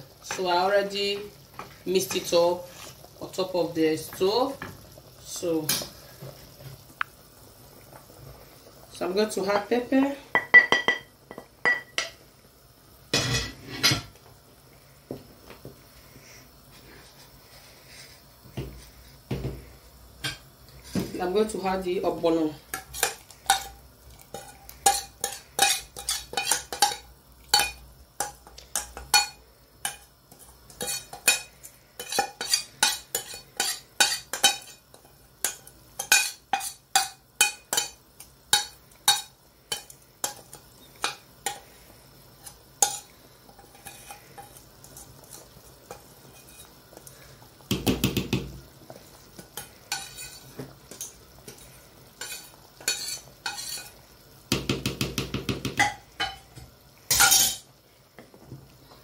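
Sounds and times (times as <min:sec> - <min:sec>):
metal spoon scraping a pot: 0:42.4 - 0:47.0, 0:49.6 - 0:53.9.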